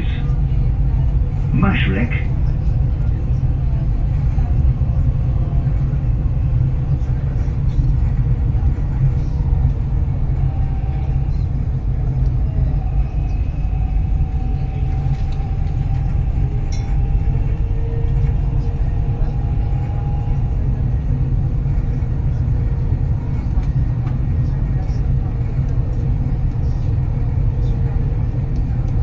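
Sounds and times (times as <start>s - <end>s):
faint train whine: 0.0s - 29.0s
train rumbling on track: 0.0s - 29.0s.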